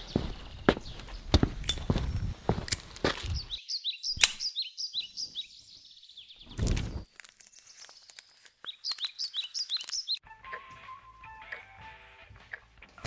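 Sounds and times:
footsteps on paving stones: 0.0s - 3.6s, 6.6s - 10.2s
small bird chirping: 0.0s - 10.2s
sharp click: 4.2s - 4.5s.

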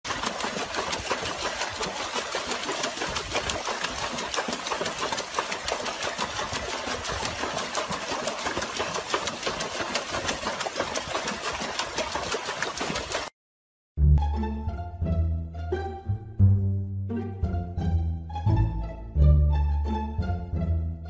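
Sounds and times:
dog splashing water in tub: 0.1s - 13.3s.

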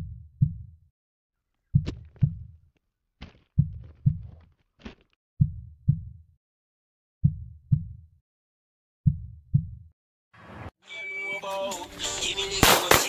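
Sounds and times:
deep heartbeat thumps: 0.0s - 0.7s, 1.7s - 2.6s, 3.4s - 4.4s, 5.4s - 6.2s, 7.2s - 8.0s, 9.0s - 9.9s.

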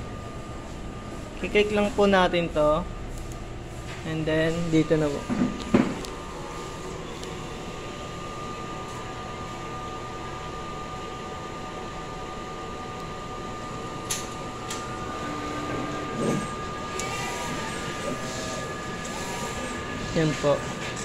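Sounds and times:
printer mechanical hum: 0.0s - 21.0s.

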